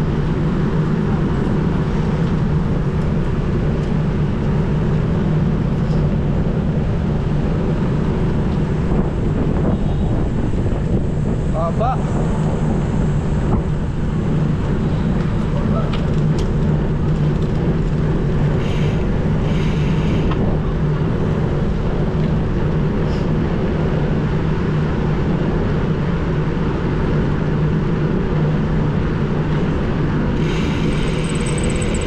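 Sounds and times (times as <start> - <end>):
wind buffeting microphone: 0.0 - 19.4.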